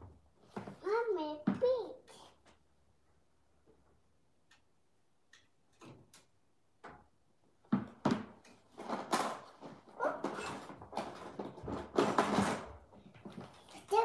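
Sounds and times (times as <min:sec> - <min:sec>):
plastic toys knocking and clattering: 0:05.3 - 0:14.0.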